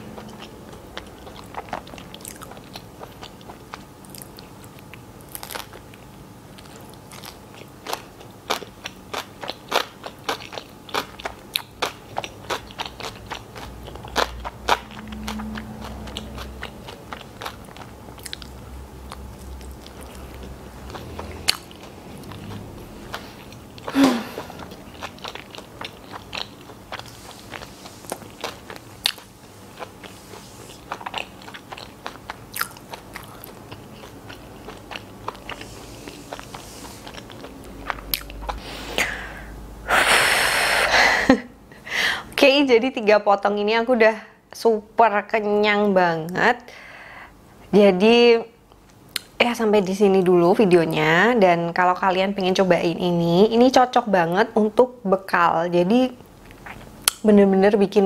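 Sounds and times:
chewing with mouth smacks: 0.0 - 38.6, 56.3 - 57.2.

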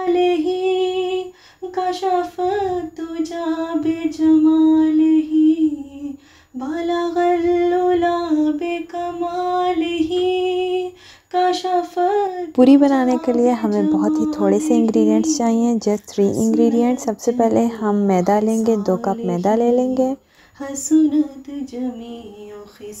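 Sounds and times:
woman singing solo: 0.0 - 17.8.

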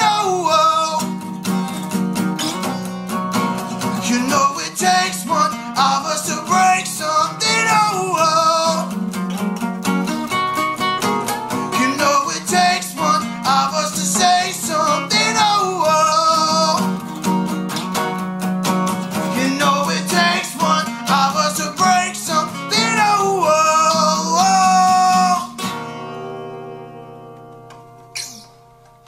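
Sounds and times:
man singing: 0.0 - 1.2, 3.8 - 9.1, 11.6 - 17.0, 19.1 - 25.6
acoustic guitars strumming: 0.0 - 29.0.

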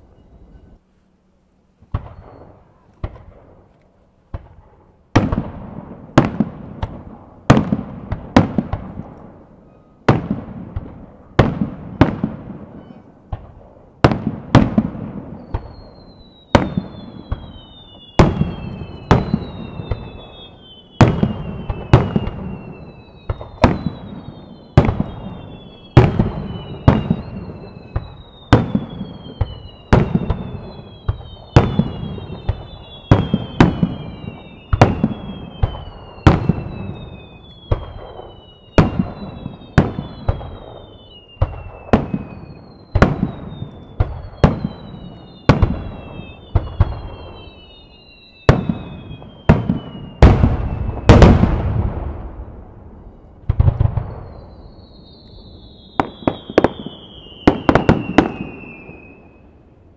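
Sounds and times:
falling firework whistles: 1.9 - 3.3, 9.6 - 59.6
firework bangs with echo: 4.3 - 9.4, 10.1 - 47.6, 48.5 - 54.6, 55.6 - 59.2.

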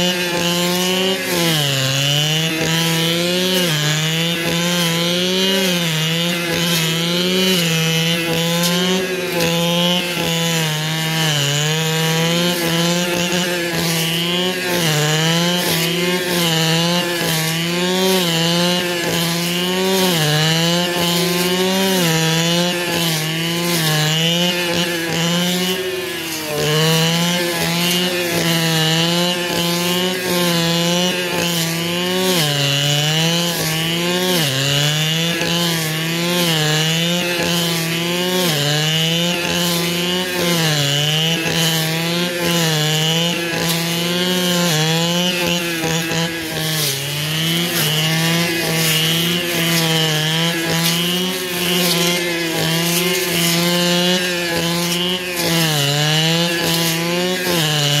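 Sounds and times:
brush cutter engine mowing grass: 0.0 - 58.0.

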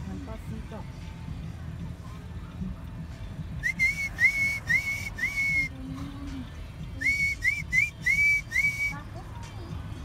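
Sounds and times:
whistle toots: 3.6 - 5.8, 7.0 - 9.0.

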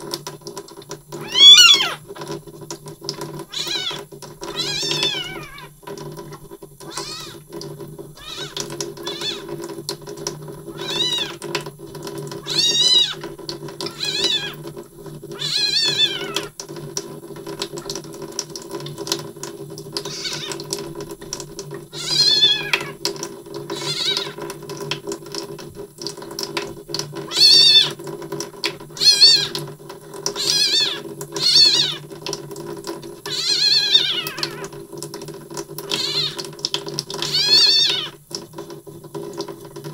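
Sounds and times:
running tap water: 0.0 - 39.9
kitten mewing: 1.2 - 2.0, 3.5 - 5.7, 6.8 - 7.4, 8.2 - 9.5, 10.7 - 11.4, 12.4 - 13.3, 13.9 - 14.6, 15.4 - 16.5, 20.0 - 20.6, 21.9 - 23.0, 23.7 - 24.4, 27.3 - 28.0, 29.0 - 29.6, 30.4 - 32.0, 33.3 - 34.7, 35.9 - 36.4, 37.2 - 38.2.

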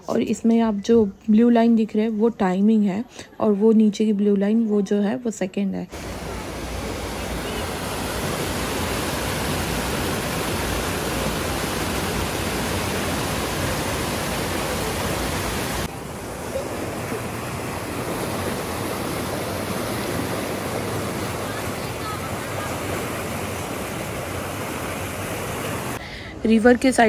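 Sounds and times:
water rushing over weir: 5.9 - 26.0.

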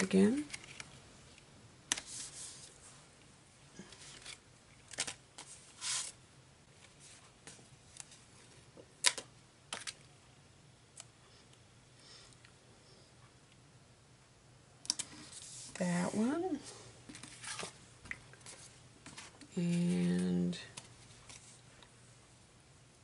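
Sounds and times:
paper rustling: 0.4 - 1.0, 3.8 - 6.2, 17.1 - 17.8, 18.4 - 21.6.

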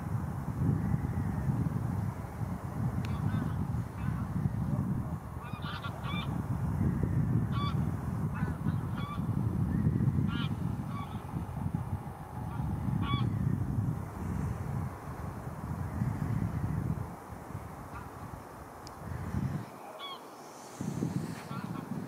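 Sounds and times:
wind buffeting microphone: 0.0 - 22.0
waterbirds calling: 5.4 - 6.4, 19.6 - 20.5.

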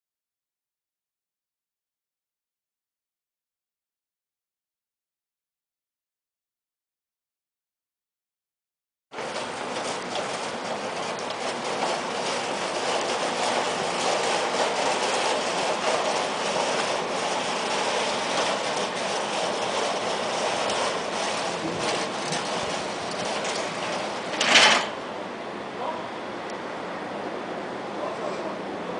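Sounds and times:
metal security gate rattling: 9.2 - 25.0
gate clanging shut: 20.6 - 25.0.

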